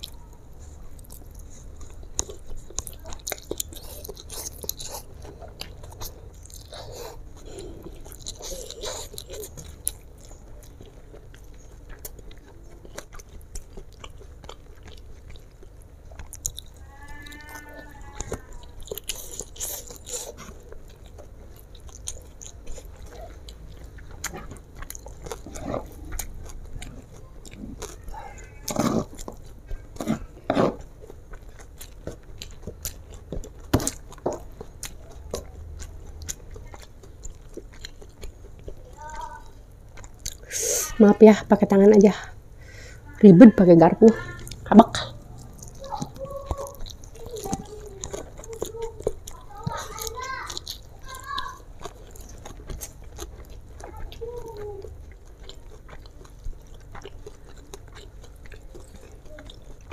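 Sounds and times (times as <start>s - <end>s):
wet chewing and lip smacking: 0.0s - 42.9s, 44.2s - 59.9s.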